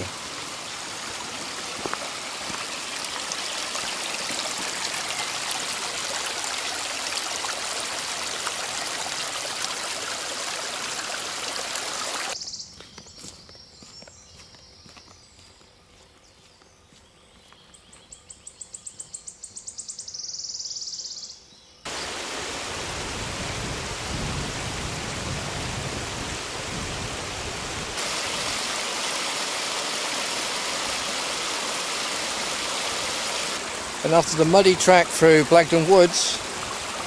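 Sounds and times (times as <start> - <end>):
stream rushing over stones: 0.0 - 12.4, 21.9 - 37.0.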